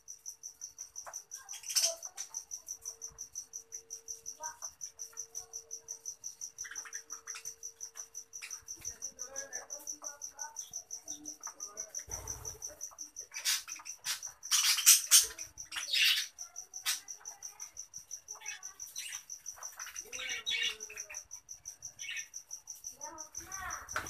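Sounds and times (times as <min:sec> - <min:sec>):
budgerigars chirping: 0:13.3 - 0:17.0.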